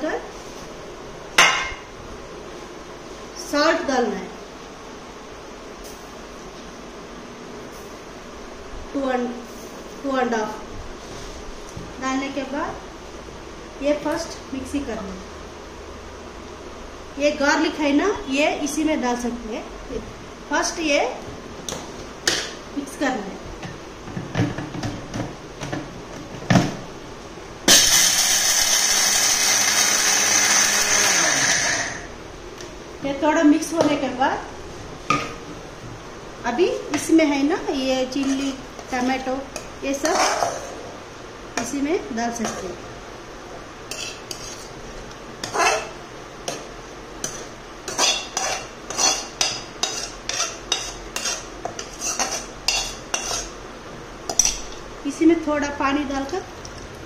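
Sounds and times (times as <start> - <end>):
mixer grinder running: 27.7 - 32.2.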